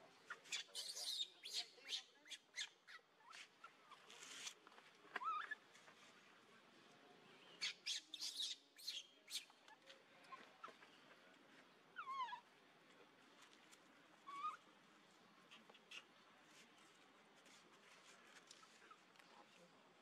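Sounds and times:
baby monkey crying: 12.0s - 12.4s, 14.3s - 14.6s.

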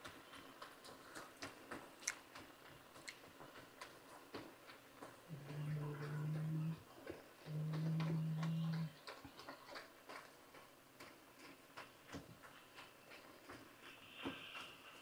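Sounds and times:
steady low hum: 4.8s - 9.2s.

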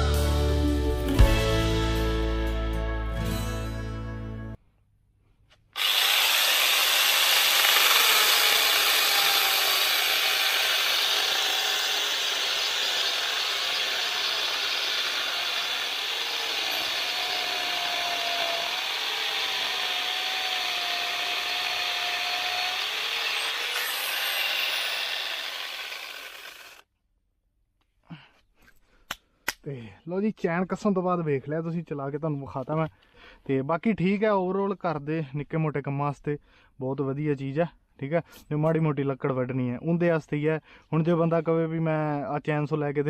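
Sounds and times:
chainsaw sawing through log: 5.8s - 26.8s
motor whine: 5.8s - 26.8s.

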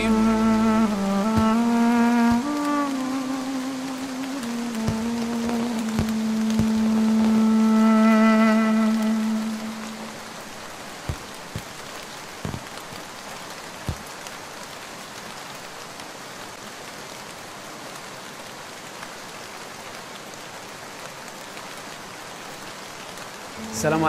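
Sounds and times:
soft low thumps: 0.0s - 3.6s, 4.2s - 13.0s
steady rain falling: 0.0s - 24.0s.

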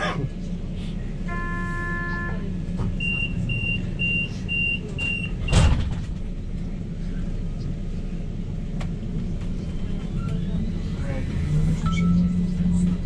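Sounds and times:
low hum of stopped tram: 0.0s - 13.0s
high warning beeps: 3.0s - 5.6s
sliding doors shutting: 5.0s - 6.2s.

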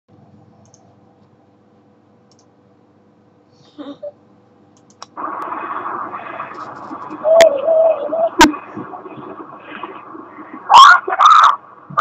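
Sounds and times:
faint room hum: 0.1s - 12.0s
noisy hiss: 0.1s - 12.0s
computer mouse clicks: 0.6s - 0.9s, 2.3s - 2.5s, 4.8s - 5.2s.

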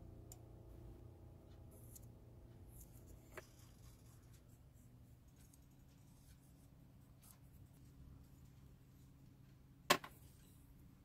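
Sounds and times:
low room hum: 0.0s - 11.0s.

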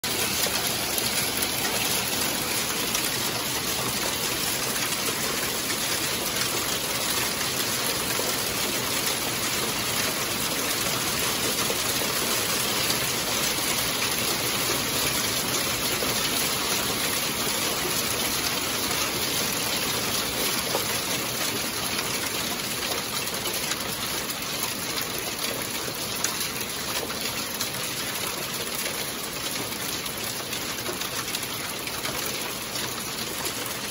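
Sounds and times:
hail and rain on a metal roof: 0.1s - 33.9s.

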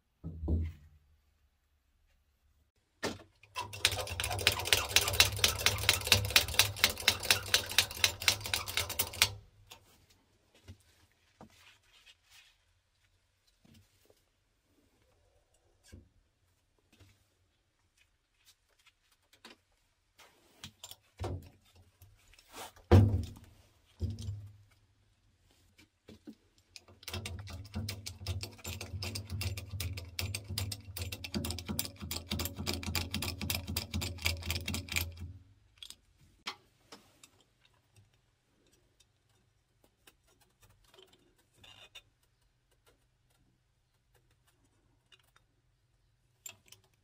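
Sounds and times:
rapid rattling clicks: 3.6s - 9.4s, 27.0s - 36.0s.

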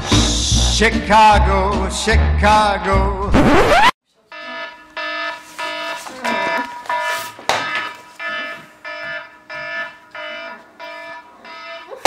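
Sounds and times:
smartphone alarm ringing: 4.3s - 12.0s.

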